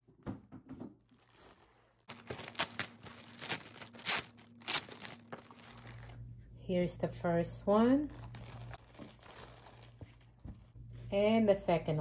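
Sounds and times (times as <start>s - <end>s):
plastic bag crinkling: 1.0s - 6.2s, 7.9s - 10.7s.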